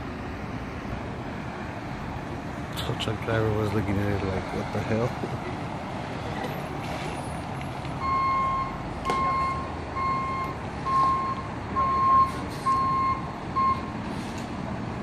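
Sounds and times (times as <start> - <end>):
truck backup alarm beeping: 8.0 - 14.1.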